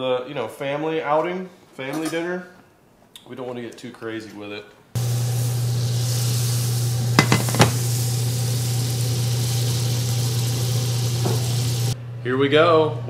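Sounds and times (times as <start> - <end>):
butter sizzling in skillet: 5.0 - 12.0.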